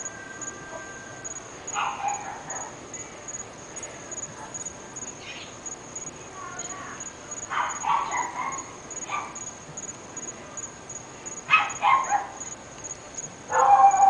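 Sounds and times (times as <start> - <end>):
faint high pulsing chirp: 0.0 - 14.0
dogs barking: 1.7 - 2.8, 7.5 - 9.4, 11.5 - 12.4, 13.5 - 14.0.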